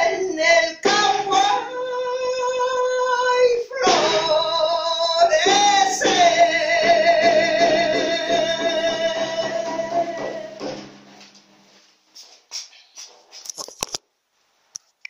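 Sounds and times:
woman singing: 0.0 - 10.8
frame drum beats: 3.9 - 4.7, 5.4 - 11.3.

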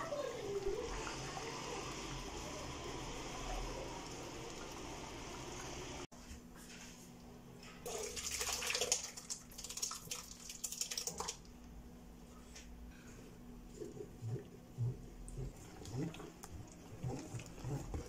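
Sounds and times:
pot boiling with bubbling hiss: 0.2 - 6.1, 13.7 - 18.0.

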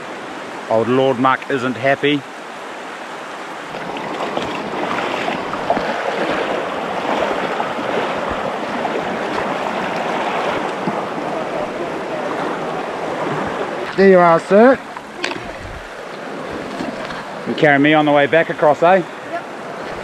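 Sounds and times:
river running over rocks: 0.0 - 20.0
boots wading splashes: 3.7 - 17.4.

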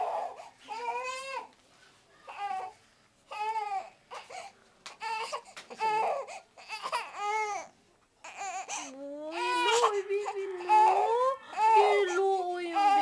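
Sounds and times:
baby crying: 3.3 - 4.3, 5.0 - 13.0.

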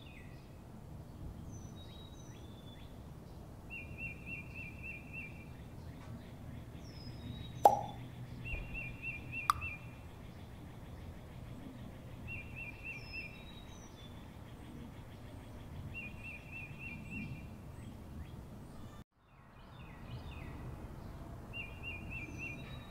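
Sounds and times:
outdoor background noise: 0.0 - 22.9
bird singing: 3.7 - 22.9
high bird chirps: 7.7 - 9.9.

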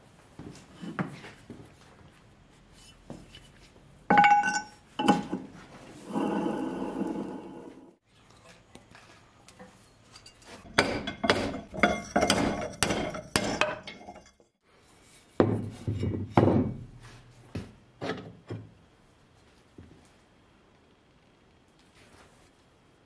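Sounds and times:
metal knocks and clinks: 4.1 - 5.5, 10.2 - 14.4.

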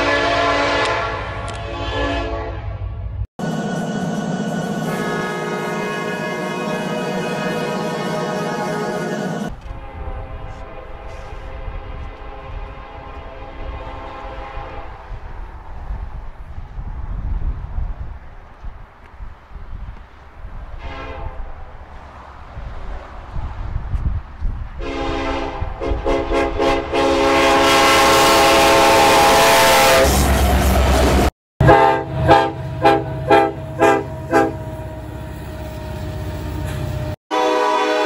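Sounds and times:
locomotive air horn blasts: 0.0 - 3.0, 4.8 - 15.1, 20.8 - 21.5, 24.8 - 30.4, 31.6 - 35.3, 37.3 - 38.0.

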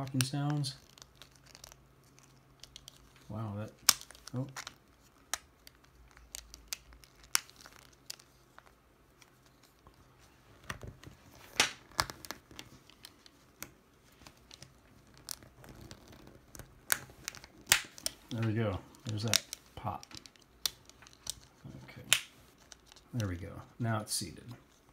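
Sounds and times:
plastic sunglasses frame clicking: 0.8 - 3.0, 3.8 - 9.3.

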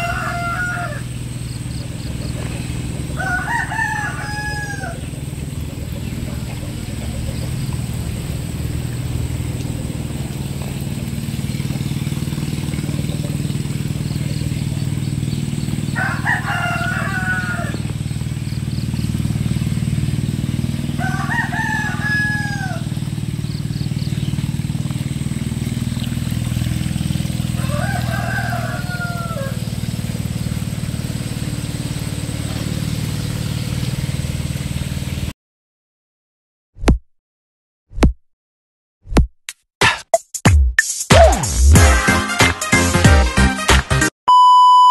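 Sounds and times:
rooster crowing: 0.0 - 1.3, 2.8 - 5.3, 15.8 - 17.9, 20.9 - 23.0, 27.5 - 29.8.

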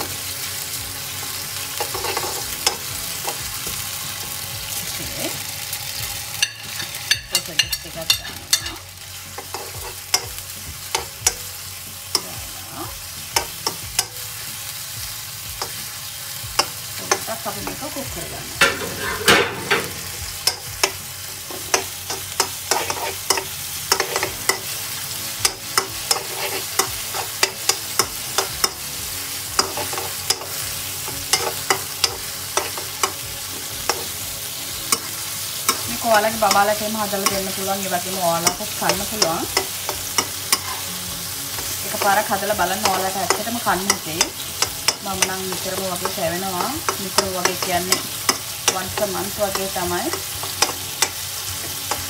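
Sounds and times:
food sizzling in oil: 0.0 - 52.0
metal spatula scraping a wok: 1.8 - 3.4, 18.6 - 24.7, 25.7 - 28.8, 38.4 - 40.9.

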